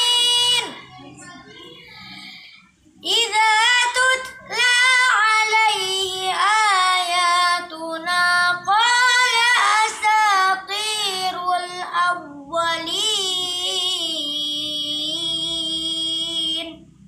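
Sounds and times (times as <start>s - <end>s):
boy chanting recitation: 0.0s - 17.0s.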